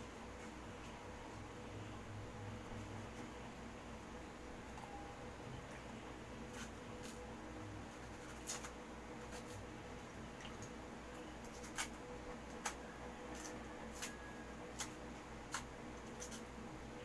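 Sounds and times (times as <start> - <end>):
faint steady hum: 0.0 - 17.0
knife cutting and scraping peel: 6.4 - 7.2, 7.9 - 9.7, 11.3 - 16.5.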